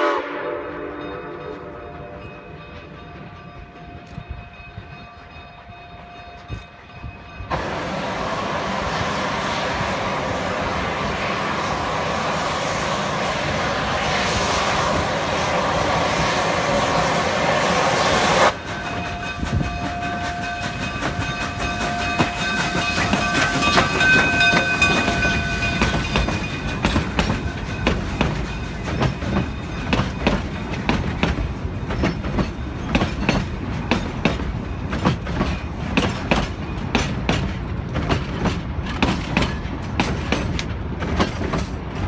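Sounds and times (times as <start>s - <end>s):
train rumble: 0.0s - 42.0s
high steady tones: 18.5s - 33.2s
wheels clicking over rail joints: 18.5s - 42.0s.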